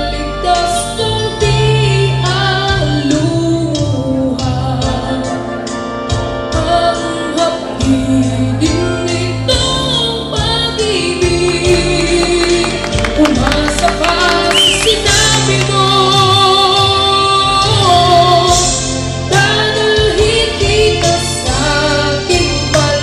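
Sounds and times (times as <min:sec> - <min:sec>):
backing music with steady beat: 0:00.0 - 0:23.0
boy singing into microphone: 0:00.0 - 0:23.0.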